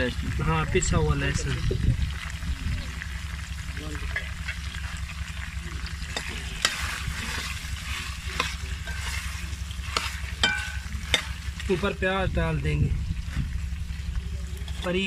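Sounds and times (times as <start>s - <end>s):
liver sizzling in pot: 0.0s - 15.0s
low steady rumble: 0.0s - 15.0s
metal ladle scraping pot: 6.0s - 12.0s, 14.6s - 15.0s.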